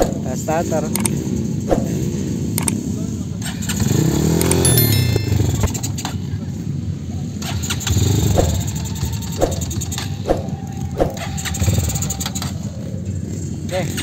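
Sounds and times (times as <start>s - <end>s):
sharp clicks: 0.9s - 1.9s, 2.6s - 2.8s
motorcycle engine starting and running: 3.4s - 6.2s, 7.4s - 12.4s.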